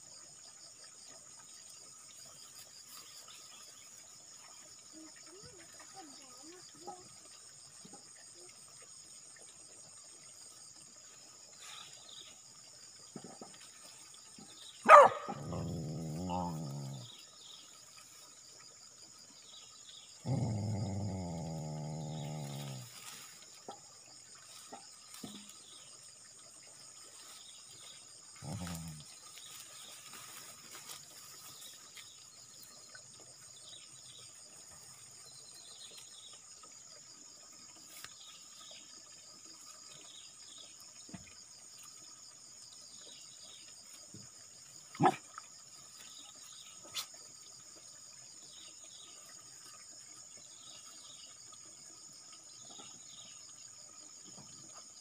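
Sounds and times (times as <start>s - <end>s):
insects chirring: 0.0s - 55.0s
dog barking: 14.8s - 15.6s, 45.0s - 45.2s
dog growling: 15.3s - 17.1s, 20.2s - 22.9s, 28.4s - 29.0s.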